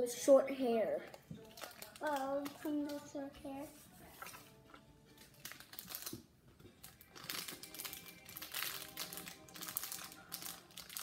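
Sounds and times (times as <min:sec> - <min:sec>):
plastic wrapper crinkling: 0:01.1 - 0:11.0.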